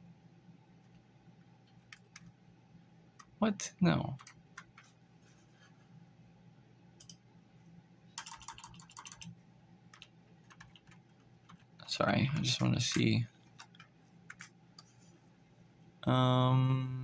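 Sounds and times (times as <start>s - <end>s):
low steady hum: 0.0s - 17.0s
faint keyboard typing: 0.7s - 2.5s, 3.1s - 3.4s, 4.0s - 5.9s, 7.0s - 7.3s, 8.1s - 15.2s.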